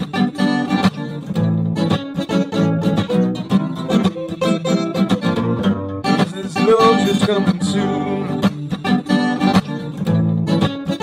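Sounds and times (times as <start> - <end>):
guitar-led music with beat: 0.0 - 11.0
person singing: 6.0 - 9.6.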